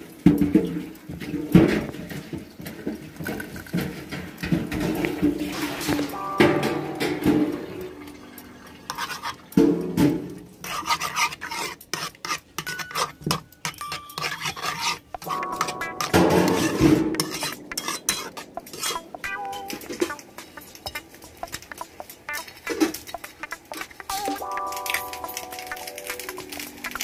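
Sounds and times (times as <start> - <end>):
metal spoon scraping a pan: 8.4 - 27.0.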